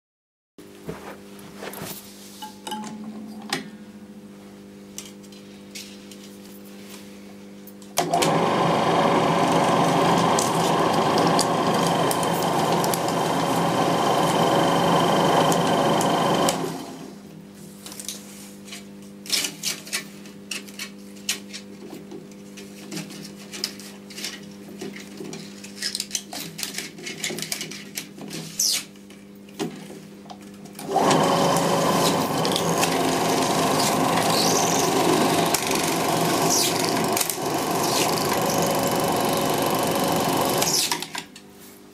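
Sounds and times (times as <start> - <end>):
film transport mechanical clatter: 30.8 - 41.2
projector humming: 31.0 - 40.8.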